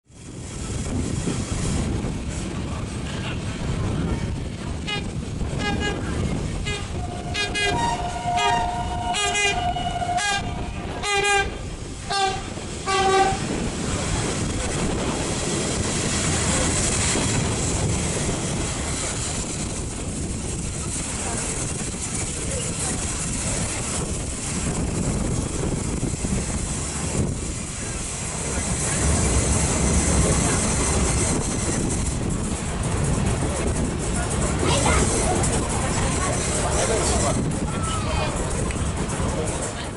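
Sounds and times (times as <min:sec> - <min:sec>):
train rumbling on rails: 0:00.0 - 0:39.9
train horns two-tone toots: 0:04.8 - 0:06.0, 0:06.6 - 0:13.5.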